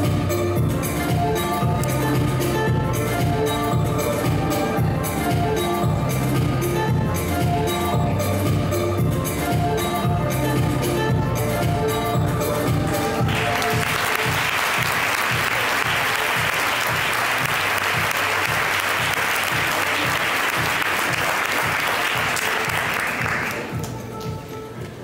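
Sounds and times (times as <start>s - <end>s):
background music with low beat: 0.0s - 25.0s
audience applause: 13.3s - 23.7s.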